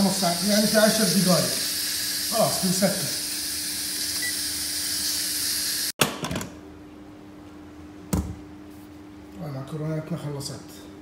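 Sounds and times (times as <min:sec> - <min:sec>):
steam hissing from valve: 0:00.0 - 0:05.9.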